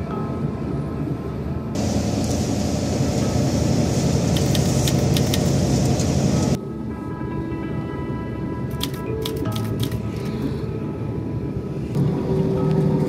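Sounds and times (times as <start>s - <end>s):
bus engine rumble: 0.0s - 7.8s, 8.6s - 13.0s
road noise: 0.0s - 13.0s
sharp clicks and rattles: 4.3s - 6.1s, 8.7s - 10.0s
background music: 6.2s - 13.0s.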